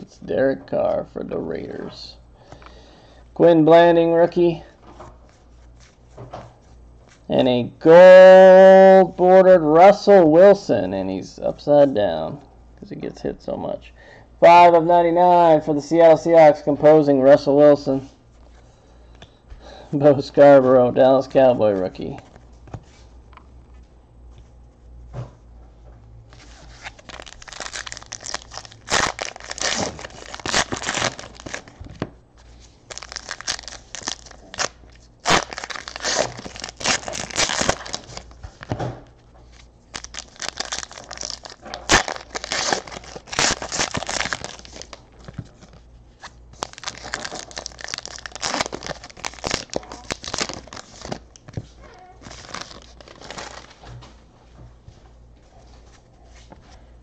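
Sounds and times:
plastic wrappers tearing and crinkling: 26.3s - 31.8s, 32.8s - 38.7s, 39.9s - 45.8s, 46.5s - 53.8s.

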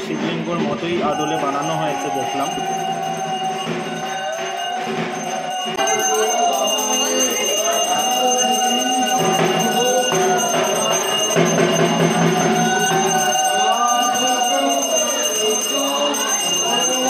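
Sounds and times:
steady high tone: 0.0s - 17.0s.

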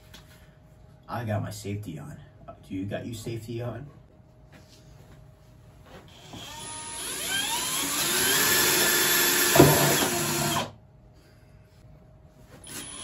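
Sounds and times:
drills driving screws into wood: 6.1s - 10.8s, 12.6s - 13.0s.

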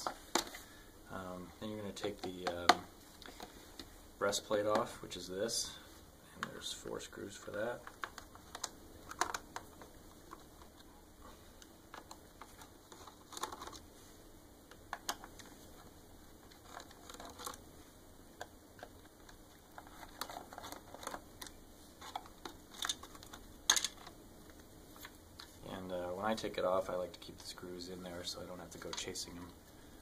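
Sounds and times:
hands handling plastic plate: 11.6s - 13.9s, 18.4s - 25.6s.

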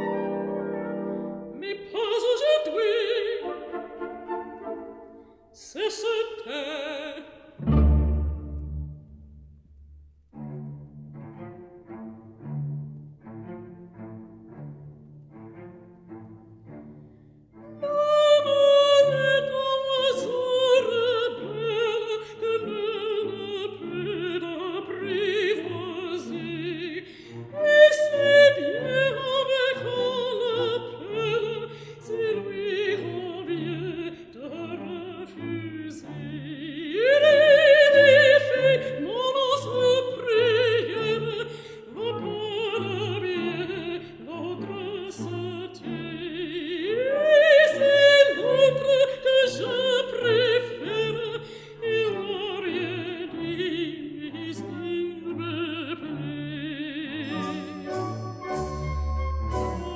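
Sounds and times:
orchestral accompaniment: 0.0s - 5.4s, 7.6s - 31.6s, 52.3s - 59.9s
opera singing with vibrato: 0.0s - 8.3s, 17.8s - 59.9s.

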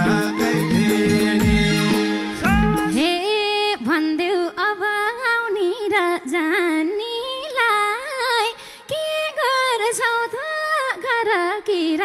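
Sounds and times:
woman singing folk melody: 2.8s - 12.0s.

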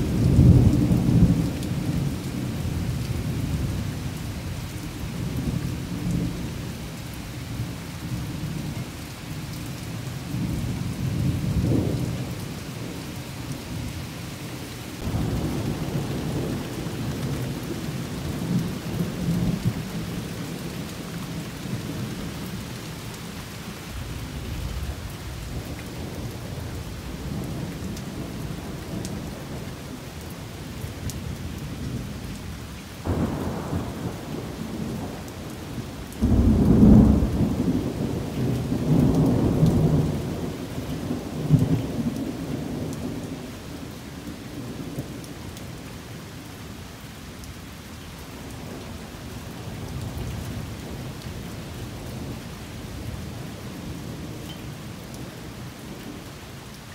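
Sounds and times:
steady rain: 0.0s - 56.9s
thunder rumbling: 15.0s - 22.5s, 33.0s - 43.5s.

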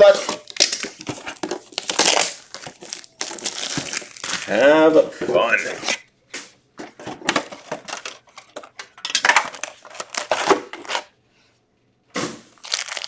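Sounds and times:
foil packs rustling: 0.0s - 4.9s, 9.4s - 11.1s, 12.5s - 13.0s.

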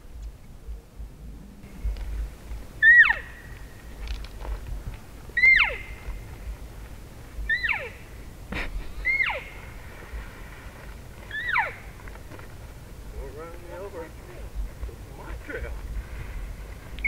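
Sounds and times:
elk mew calls: 2.8s - 3.4s, 5.4s - 6.0s, 7.4s - 8.0s, 9.0s - 9.6s, 11.3s - 11.9s.

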